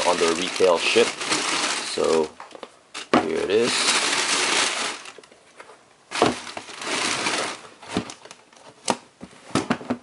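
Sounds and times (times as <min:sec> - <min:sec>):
tissue paper rustling: 0:00.0 - 0:02.3, 0:03.3 - 0:05.2, 0:06.1 - 0:08.2.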